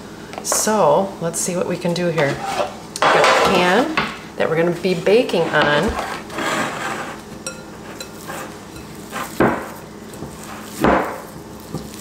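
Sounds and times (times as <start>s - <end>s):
hands working dough in bowl: 4.9s - 12.0s.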